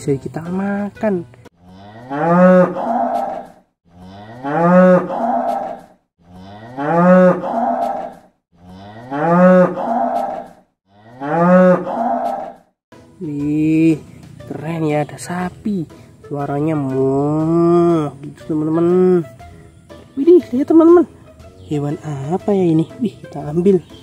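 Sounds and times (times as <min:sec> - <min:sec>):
cow mooing: 0:01.6 - 0:12.6.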